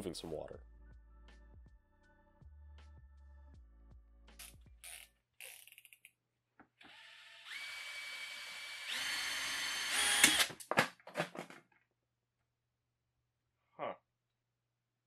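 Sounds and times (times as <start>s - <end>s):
cordless drill motor whine: 6.8s - 10.5s.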